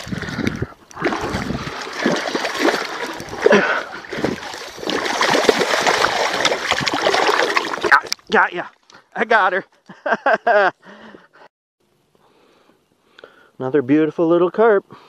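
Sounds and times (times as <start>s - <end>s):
fish splashing in shallow water: 0.0s - 8.1s.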